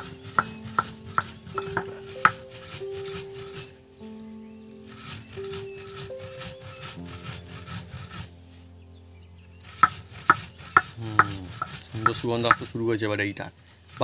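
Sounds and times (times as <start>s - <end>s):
sharp knocks: 0.0s - 2.7s, 9.7s - 12.7s
stone muller grinding spices: 0.0s - 3.7s, 4.9s - 8.3s, 9.6s - 12.8s
background music: 0.0s - 14.0s.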